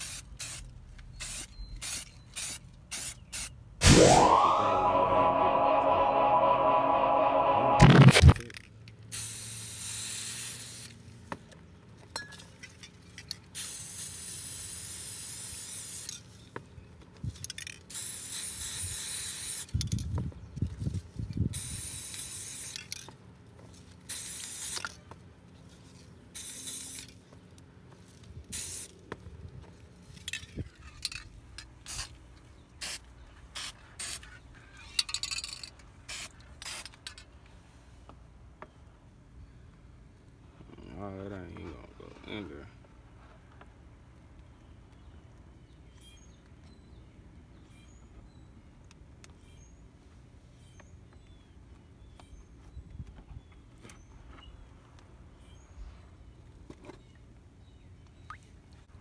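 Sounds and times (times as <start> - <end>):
spray-paint can hissing: 0.0 - 0.6, 9.1 - 10.9, 13.6 - 16.2, 17.9 - 19.7, 21.6 - 22.8, 24.1 - 24.8, 26.4 - 27.1, 28.5 - 28.9, 33.6 - 34.2, 36.1 - 36.9.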